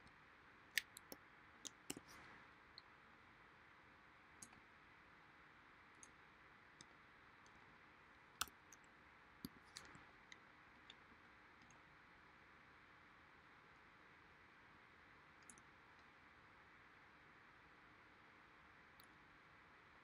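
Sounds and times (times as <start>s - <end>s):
faint steady hiss: 0.0s - 20.0s
computer mouse clicks: 0.8s - 2.3s.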